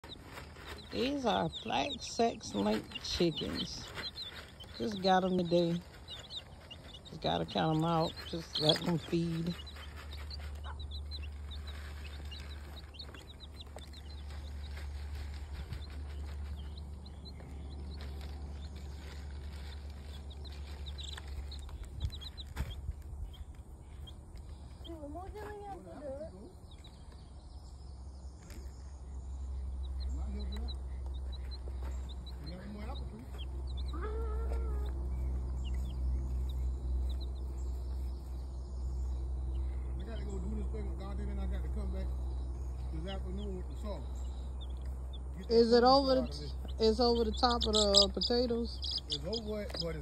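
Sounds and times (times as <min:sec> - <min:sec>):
chicks peeping: 0:00.0 - 0:50.0
tapping on feeders: 0:00.1 - 0:14.6, 0:44.6 - 0:50.0
steady low rumble: 0:26.5 - 0:50.0.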